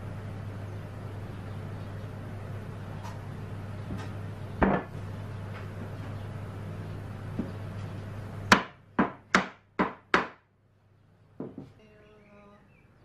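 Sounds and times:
steady low hum: 0.0 - 13.0
wooden knocks: 11.4 - 11.8.

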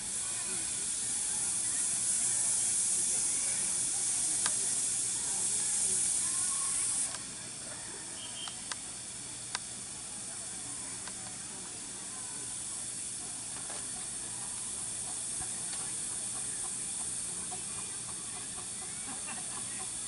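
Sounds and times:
steam locomotive hissing: 0.0 - 20.0
faint clicks: 4.3 - 4.6, 7.0 - 7.3, 8.4 - 8.9, 9.5 - 9.7.

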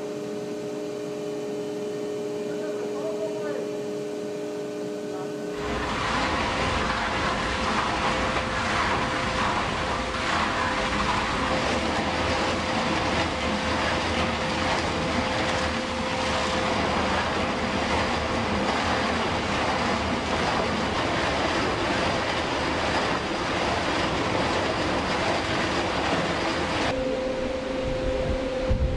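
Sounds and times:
constant tone: 0.0 - 28.9
cutting drum grinding concrete: 5.6 - 26.9.

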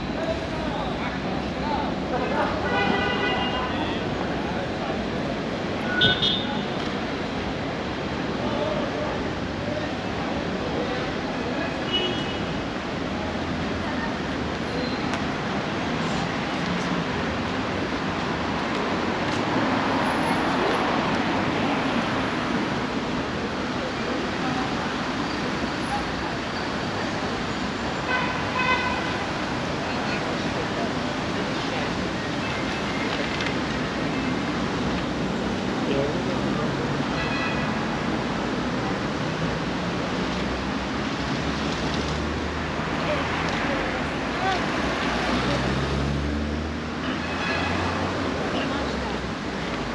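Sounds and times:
city traffic hiss: 0.0 - 49.9
cars passing: 12.4 - 49.9.

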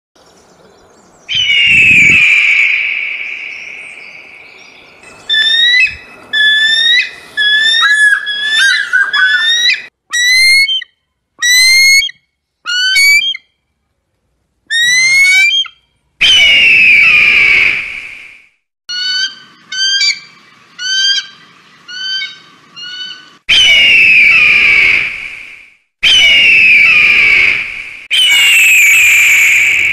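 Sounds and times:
eagle hoarse screeches: 1.3 - 3.5, 5.3 - 13.4
eagle piping whistled notes: 1.3 - 12.2, 28.1 - 29.9.

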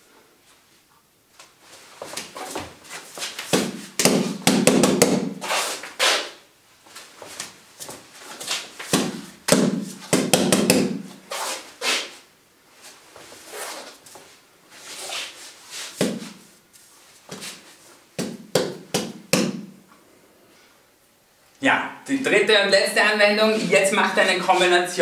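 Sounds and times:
fists thudding on padded bags: 8.9 - 11.1
forearms knocking on wooden arm: 9.0 - 11.0.

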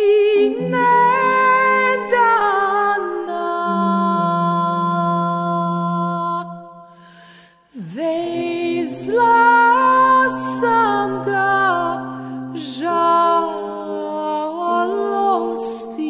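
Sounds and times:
woman singing a long note: 0.0 - 6.6
person singing slow melody: 0.0 - 16.0.

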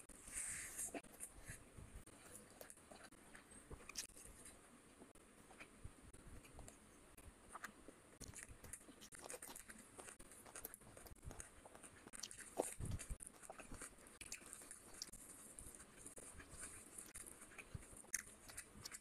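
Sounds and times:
chewing and mouth clicks: 2.1 - 4.6, 7.5 - 19.0
fingers squelching in food: 7.5 - 19.0.

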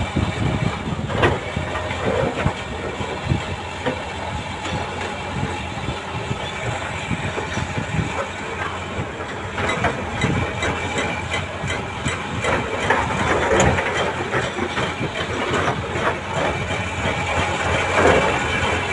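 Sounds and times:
clatter and rattles: 0.0 - 18.9
heavy diesel engines: 0.0 - 18.9.

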